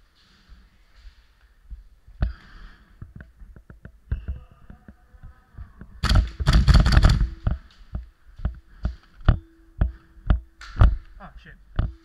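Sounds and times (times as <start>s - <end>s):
camera knocks and clicks: 6.0s - 8.6s.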